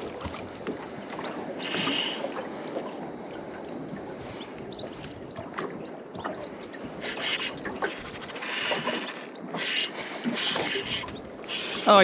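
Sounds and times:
water lapping against boat hull: 0.0s - 12.0s
splashy hissing: 1.6s - 2.4s, 7.0s - 12.0s.

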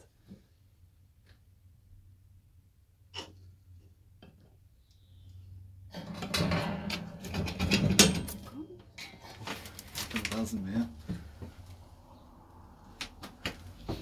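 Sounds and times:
plastic bags rustling and scraping: 9.1s - 11.7s.

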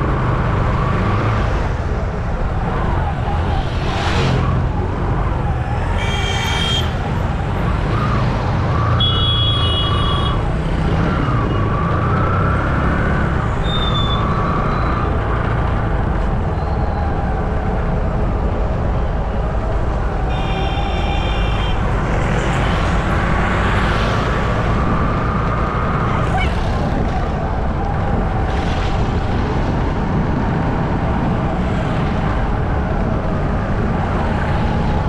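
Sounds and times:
engine and road rumble: 0.0s - 35.0s
car horn: 6.0s - 7.0s, 9.0s - 10.4s, 20.3s - 21.9s.

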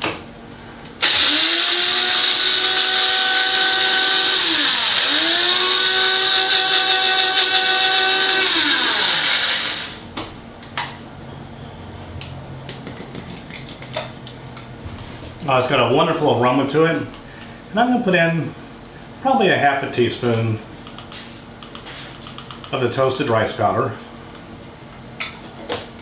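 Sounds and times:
coffee grinder motor grinding: 1.0s - 10.0s.

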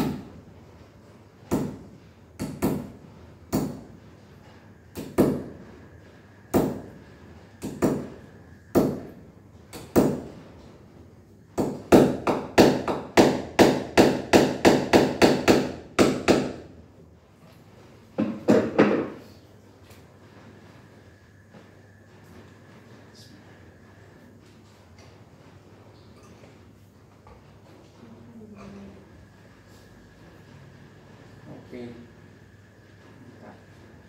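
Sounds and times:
hammer hitting nail: 1.5s - 2.9s, 3.5s - 3.9s, 4.9s - 5.5s, 6.5s - 6.9s, 7.6s - 9.1s, 9.7s - 10.3s, 11.6s - 16.6s, 18.2s - 19.2s.

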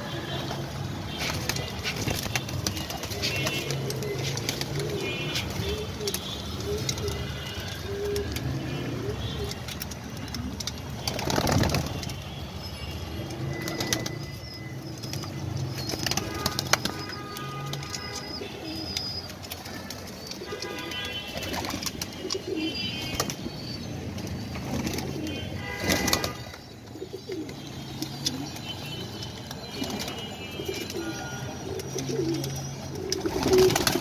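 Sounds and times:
pigeons cooing: 3.0s - 9.6s, 21.7s - 23.9s, 27.0s - 28.6s, 29.7s - 34.0s.

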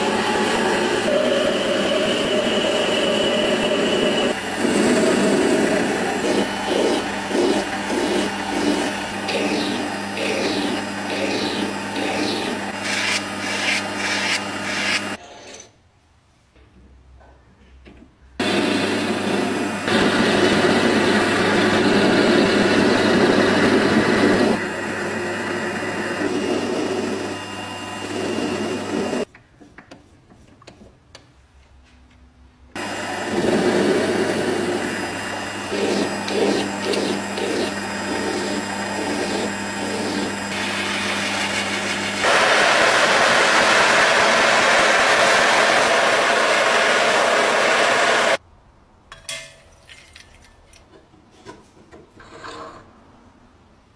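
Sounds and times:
metal lathe cutting steel: 0.0s - 15.2s, 18.4s - 29.2s, 32.8s - 48.4s
gas torch flame hissing: 4.1s - 15.2s, 35.7s - 43.4s.

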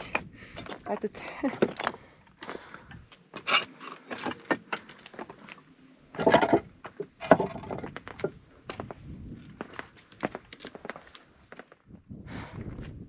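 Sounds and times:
footsteps on rock: 6.1s - 8.9s.

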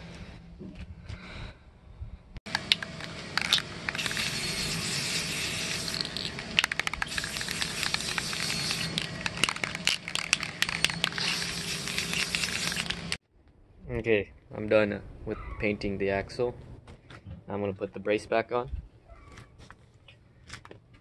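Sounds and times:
spray can hissing: 3.4s - 13.2s.

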